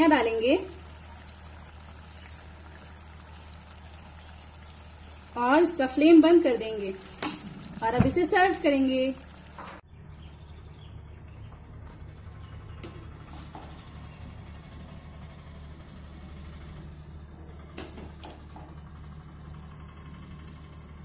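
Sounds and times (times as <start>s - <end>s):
steady low hum: 0.0s - 21.0s
faint bird chirps: 0.8s - 5.3s.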